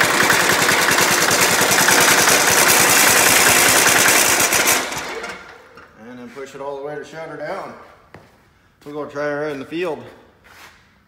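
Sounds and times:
diesel engine clattering: 0.0 - 5.7.

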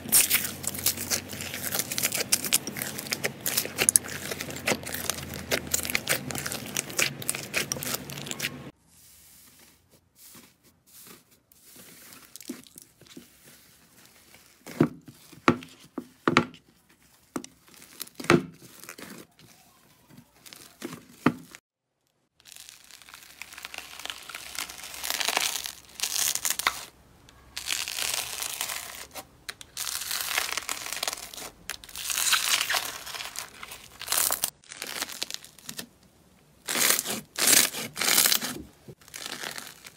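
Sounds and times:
crunchy slime crinkly crackling: 0.0 - 8.8, 10.3 - 15.9, 16.8 - 39.9
slime crackling: 0.0 - 8.8, 10.4 - 15.4, 17.5 - 21.6, 22.4 - 36.0, 36.6 - 39.9.

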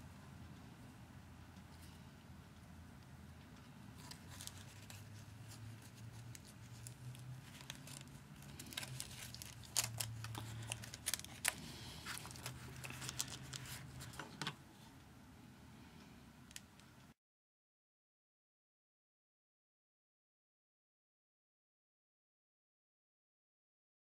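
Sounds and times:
low steady hum: 0.0 - 17.1
small sharp crackles and clicks: 3.0 - 13.9
paper crinkling and rustling: 4.0 - 14.6.

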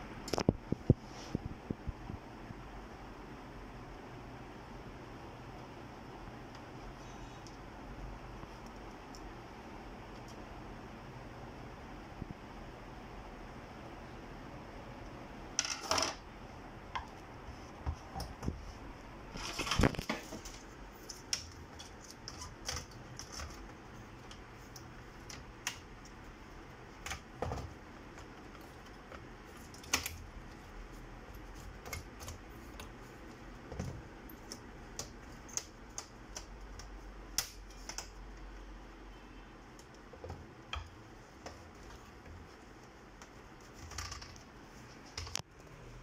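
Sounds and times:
computer parts clattering: 15.6 - 16.2, 19.4 - 26.1.

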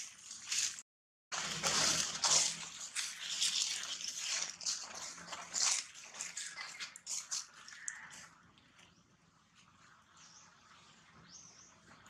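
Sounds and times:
dry leaves rustling: 0.0 - 8.4
plastic bag crinkling: 1.4 - 8.0.

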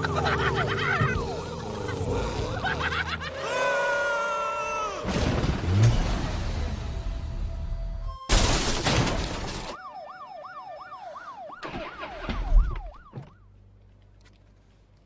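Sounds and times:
car crashing: 5.0 - 7.3, 8.3 - 9.8
police siren yelping: 9.4 - 13.5.

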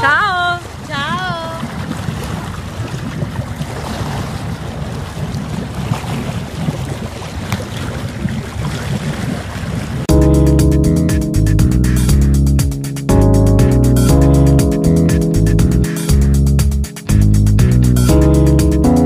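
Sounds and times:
music: 10.1 - 19.0.

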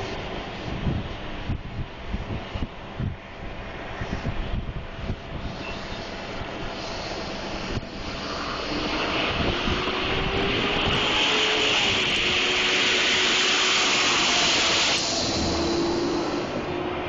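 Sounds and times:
steady jet whine: 0.0 - 17.0
wind buffeting microphone: 0.2 - 17.0
jet engine rushing: 5.4 - 17.0.

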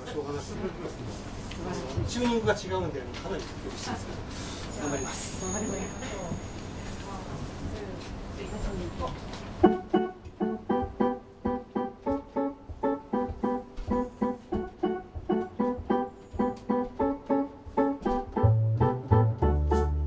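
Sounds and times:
piano repeated chords: 9.6 - 20.0
double bass: 18.3 - 20.0.

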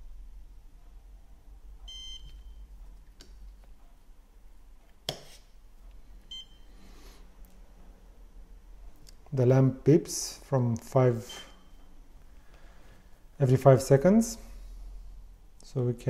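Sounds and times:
device beeping: 1.8 - 2.7, 6.3 - 6.7.

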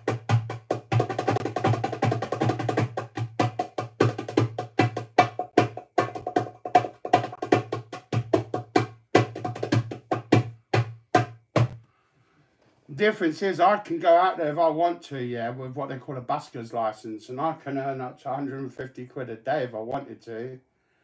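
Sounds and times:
hand drum fast rhythm: 0.0 - 11.8.

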